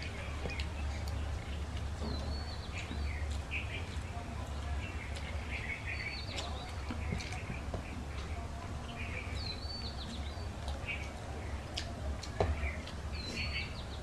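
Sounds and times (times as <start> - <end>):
birds chirping: 0.0 - 14.0
chewing: 0.0 - 14.0
fingers mixing rice on steel plates: 0.0 - 14.0
steady low hum: 0.0 - 14.0
whistled bird calls: 12.6 - 14.0.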